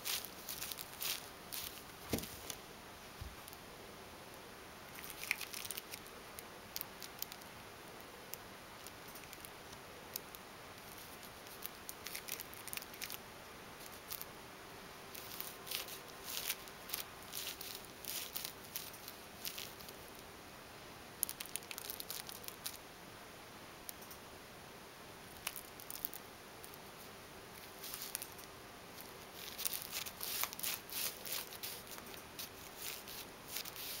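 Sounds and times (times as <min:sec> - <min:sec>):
plastic straw ticking and rustling: 0:00.0 - 0:02.6, 0:04.9 - 0:06.1, 0:06.7 - 0:13.2, 0:15.2 - 0:20.2, 0:21.2 - 0:22.8, 0:25.3 - 0:26.8, 0:27.6 - 0:34.0
soft thumps: 0:02.0 - 0:02.4.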